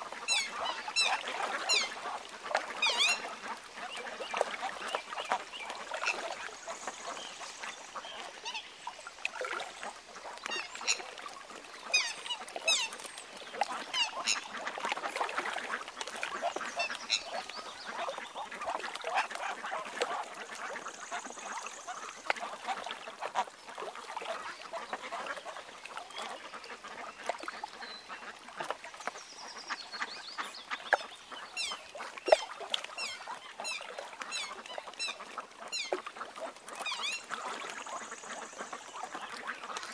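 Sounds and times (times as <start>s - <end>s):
swans calling: 0.0s - 3.7s, 11.9s - 13.1s.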